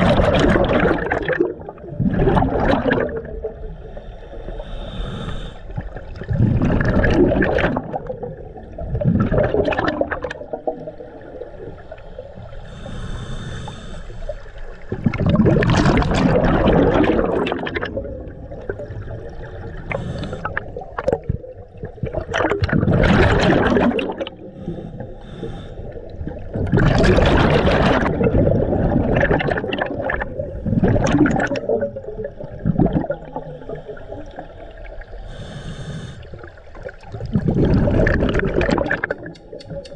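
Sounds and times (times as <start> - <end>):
exhaled bubbles underwater: 0.0 - 39.9
hissing regulator inhalations: 3.8 - 5.9, 11.8 - 14.8, 19.9 - 20.8, 24.5 - 26.2, 33.4 - 36.4.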